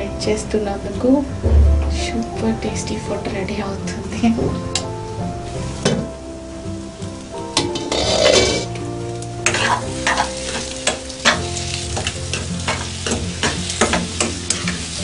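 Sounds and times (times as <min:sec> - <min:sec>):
food sizzling in frying pan: 0:05.1 - 0:15.0
spatula scraping and knocking pan: 0:07.6 - 0:08.7, 0:09.4 - 0:14.9.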